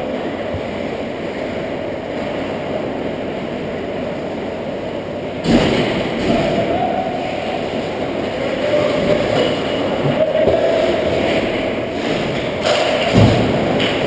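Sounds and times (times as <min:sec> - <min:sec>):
muffled ice rink rumble: 0:00.0 - 0:14.0.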